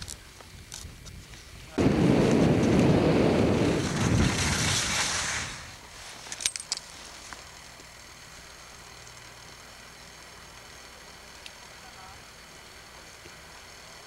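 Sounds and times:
wind buffeting microphone: 0:00.2 - 0:05.8.

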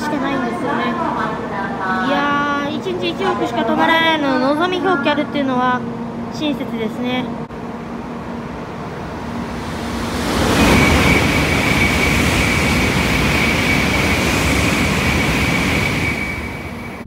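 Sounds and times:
high-speed train rushing past: 0:00.0 - 0:17.0
high steady whine: 0:07.5 - 0:17.0.

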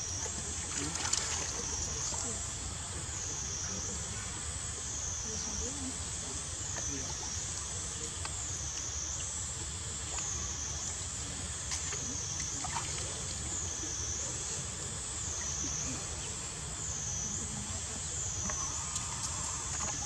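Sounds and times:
steady hiss with wavering tone: 0:00.0 - 0:20.0
macaques splashing in water: 0:00.3 - 0:02.2.

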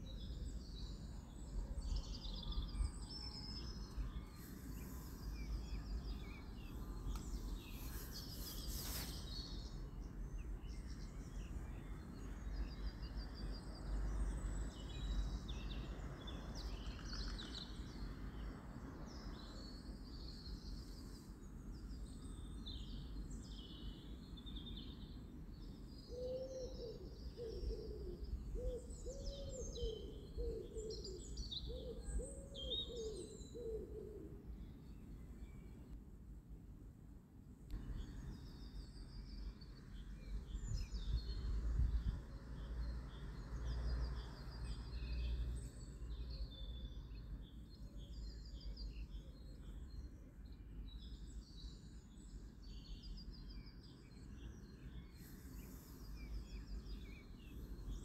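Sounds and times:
small birds chirping: 0:00.0 - 0:18.6, 0:37.6 - 0:58.0.

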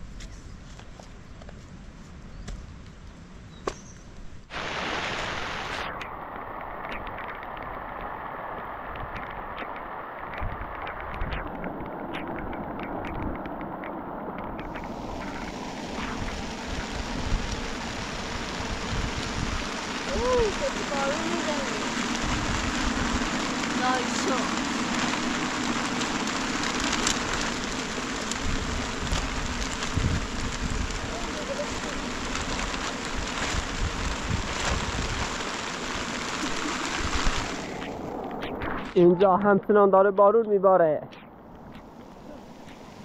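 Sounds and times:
rain on plastic sheeting: 0:04.4 - 0:40.8, 0:41.4 - 0:43.0
wind buffeting microphone: 0:05.5 - 0:39.8.

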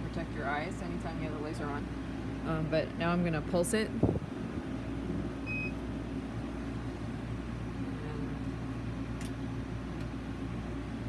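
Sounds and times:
short beep: 0:05.5 - 0:05.8.

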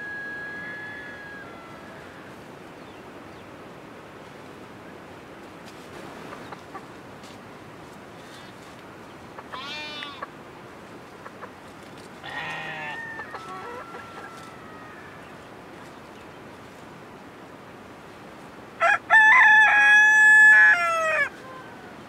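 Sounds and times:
steady background hiss: 0:00.0 - 0:22.0
farm animal calls: 0:09.3 - 0:10.4, 0:11.2 - 0:15.5.

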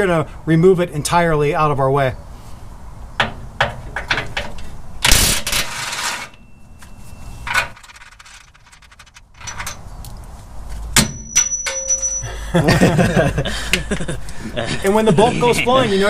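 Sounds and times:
sharp metal clink: 0:11.0 - 0:12.3.

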